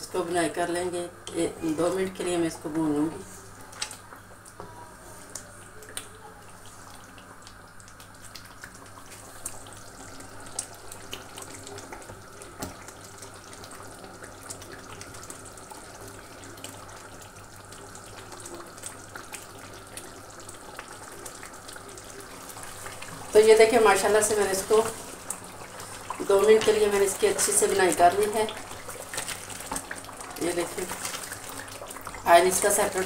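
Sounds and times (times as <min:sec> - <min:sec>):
food sizzling in a pan: 0:03.2 - 0:33.0.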